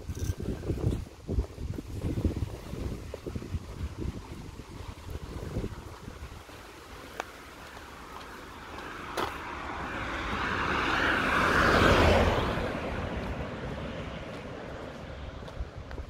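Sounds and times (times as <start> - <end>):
car driving past: 8.4 - 15.4.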